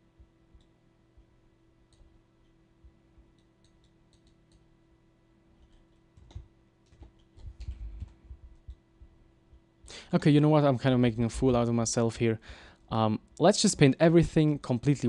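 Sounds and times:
low electrical hum: 0.0s - 15.0s
computer mouse clicks: 0.5s - 0.8s, 1.9s - 2.6s, 3.3s - 4.7s, 5.6s - 8.8s.

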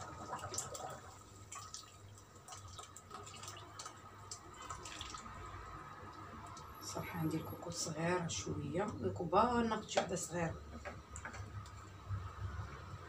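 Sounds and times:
thick puree plopping and dripping: 0.0s - 6.8s.

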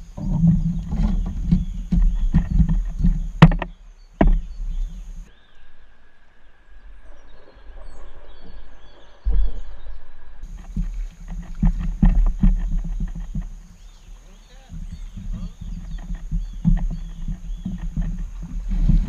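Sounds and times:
knocks and thumps on kayak: 0.0s - 5.3s, 10.4s - 14.0s, 14.6s - 19.0s.

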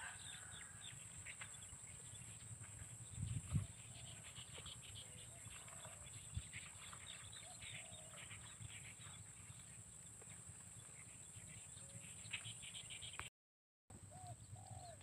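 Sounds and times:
bird chirps: 0.0s - 13.3s
distant animal calls: 14.0s - 15.0s.

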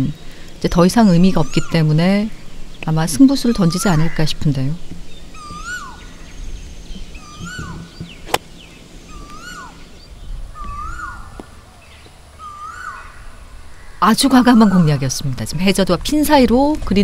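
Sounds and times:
bird whistled call: 5.3s - 8.4s, 9.0s - 9.9s, 10.5s - 11.4s, 12.4s - 13.1s
golf club striking ball: 8.0s - 8.6s.

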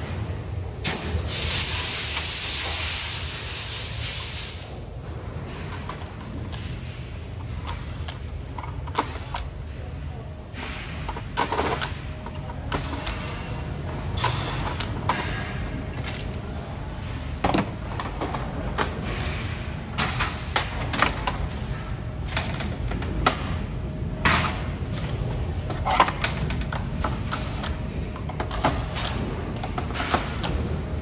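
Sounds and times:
steady low hum: 0.0s - 31.0s
plastic parts clicking and knocking: 14.1s - 16.4s, 17.4s - 23.6s, 24.2s - 31.0s.

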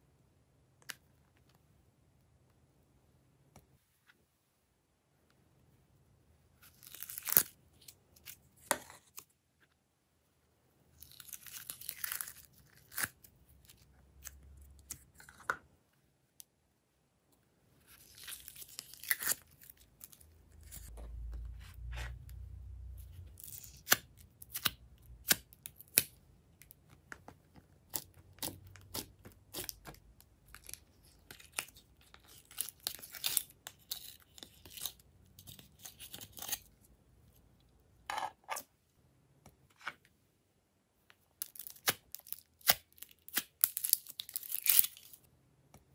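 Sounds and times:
slime tearing and crackling: 6.7s - 7.6s, 11.0s - 15.0s, 17.9s - 20.9s, 27.9s - 36.7s, 41.4s - 45.2s.

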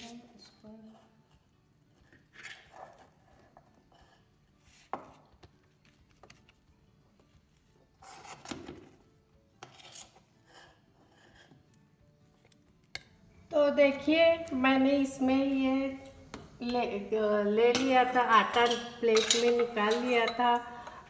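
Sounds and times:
utensil scraping metal dish: 9.6s - 11.7s.

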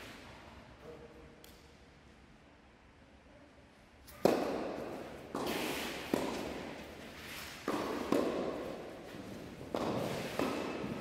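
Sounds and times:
tennis balls struck and bouncing: 4.1s - 11.0s.

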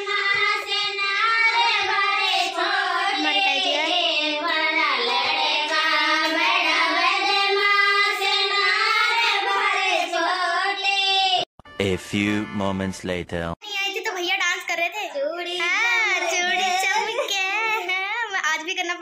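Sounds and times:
music: 11.6s - 13.2s.

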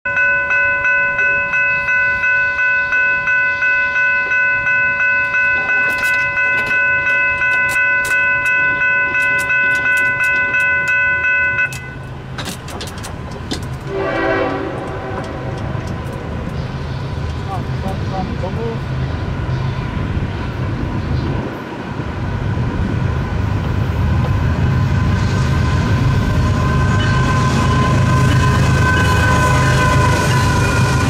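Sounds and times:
crossing warning bell ringing: 0.0s - 20.1s, 24.4s - 31.0s
short horn: 13.8s - 15.8s.

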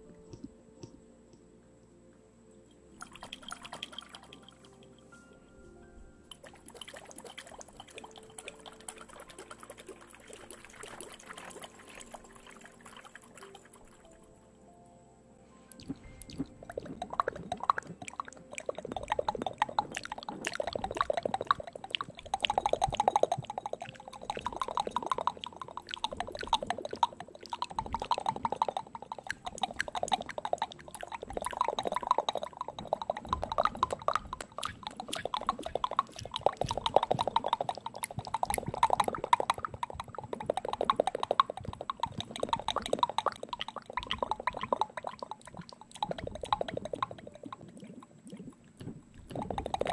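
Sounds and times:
wet mouth clicks and smacks: 15.7s - 49.9s.

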